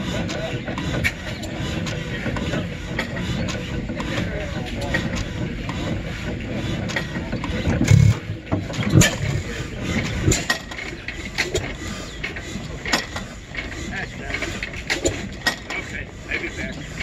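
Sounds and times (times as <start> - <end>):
old gas engine rumbling: 0.0 - 17.0
heavy thumps: 7.7 - 9.5.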